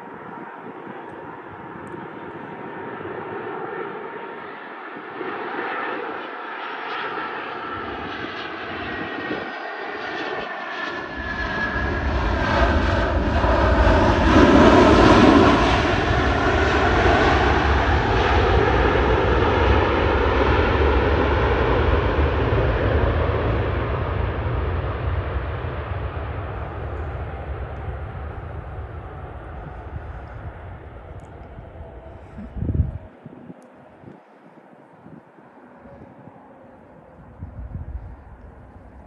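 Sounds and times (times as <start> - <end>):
jet airliner engine roar: 0.0 - 39.0
deep rumble: 24.9 - 39.0.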